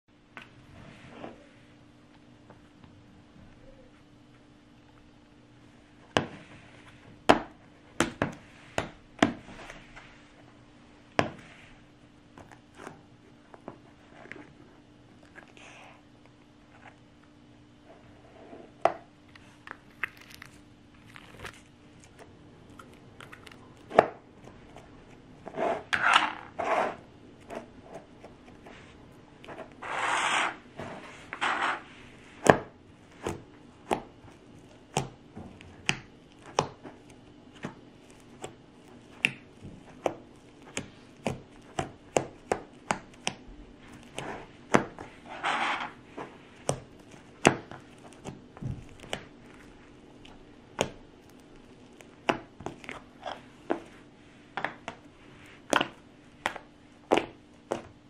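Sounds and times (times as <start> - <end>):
slime squishing: 19.3 - 58.0.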